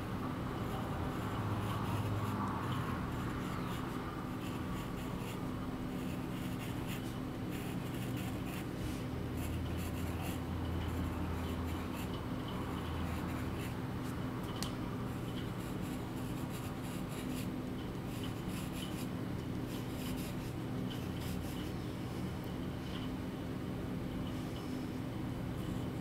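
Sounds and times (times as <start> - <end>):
pencil scratching on paper: 0.6 - 8.7, 9.4 - 12.2, 15.2 - 17.5, 18.1 - 19.1, 19.7 - 21.7.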